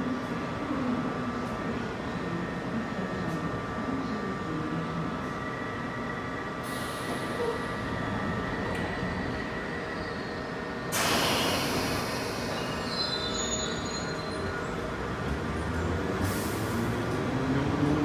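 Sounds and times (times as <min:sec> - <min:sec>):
train doors closing: 0:06.6 - 0:09.2, 0:10.9 - 0:15.0
train pulling away: 0:06.6 - 0:18.0
loud rush of hissing air: 0:10.9 - 0:12.9.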